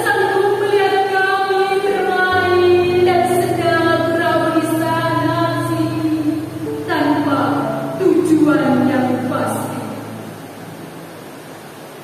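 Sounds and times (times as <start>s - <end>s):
woman singing long notes: 0.0s - 10.3s.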